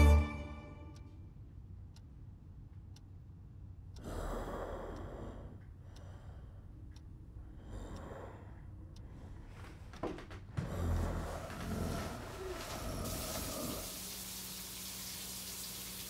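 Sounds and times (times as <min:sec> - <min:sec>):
person breathing heavily: 0:07.4 - 0:09.9.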